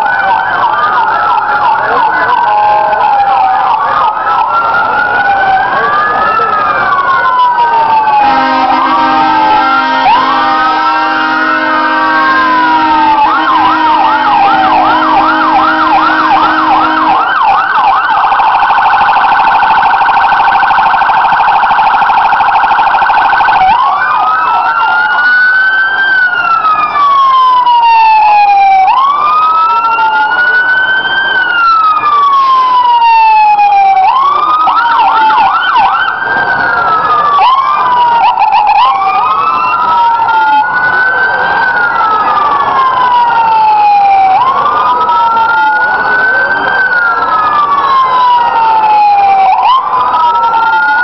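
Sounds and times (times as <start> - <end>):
emergency vehicle sirens: 0.0 - 51.0.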